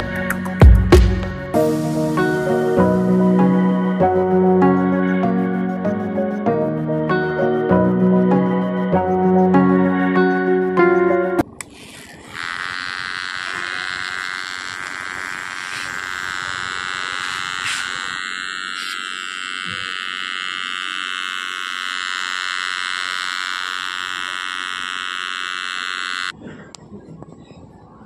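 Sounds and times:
toy motor buzzing whine: 11.4 - 26.4.

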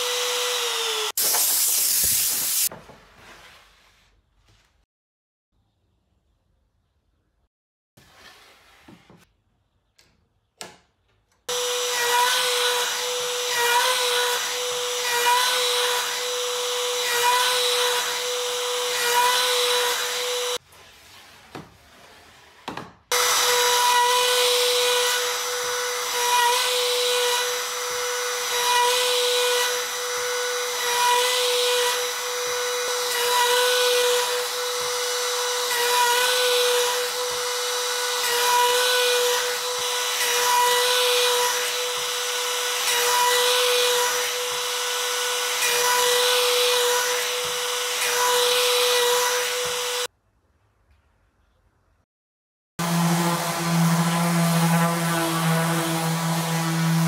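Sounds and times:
router cutting wood whine: 0.0 - 1.2, 11.5 - 20.6, 23.1 - 50.1, 52.8 - 57.0.

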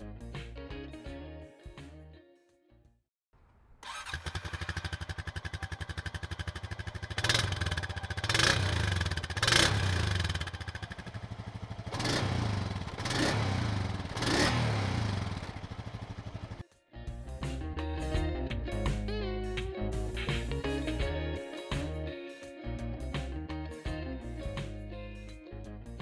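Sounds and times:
atv engine idling and revving: 3.9 - 16.6.

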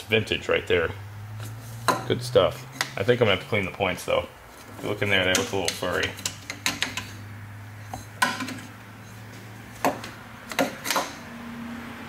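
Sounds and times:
clicks and knocks of engine parts: 4.6 - 7.2, 7.9 - 11.3.

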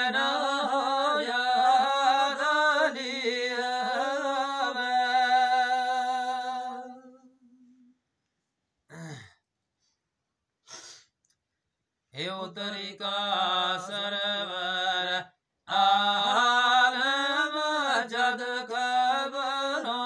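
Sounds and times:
man singing unaccompanied: 0.0 - 7.9, 12.1 - 20.0
short vocal sound: 8.9 - 9.4.

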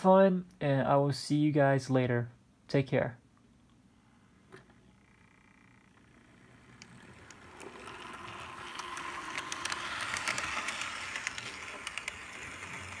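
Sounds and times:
model train rolling on track: 5.9 - 13.0
sharp clicks of train wheels: 6.7 - 13.0.

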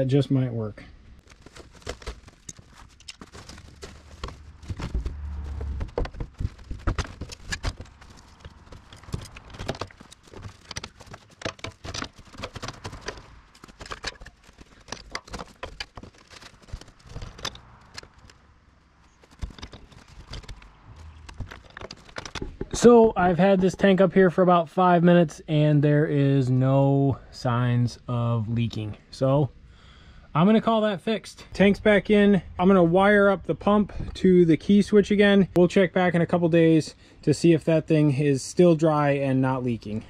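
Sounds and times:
metal clanks and knocks: 1.3 - 18.4, 19.1 - 23.8
heavy thump: 4.0 - 8.0.

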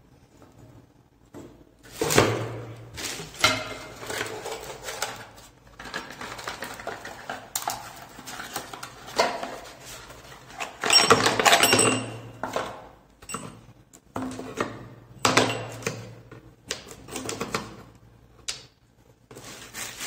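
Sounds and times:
packaging rustling: 19.3 - 20.0.

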